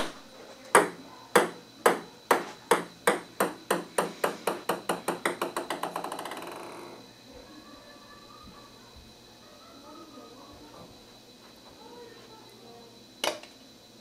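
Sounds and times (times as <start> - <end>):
table tennis ball bouncing: 0.7 - 6.6.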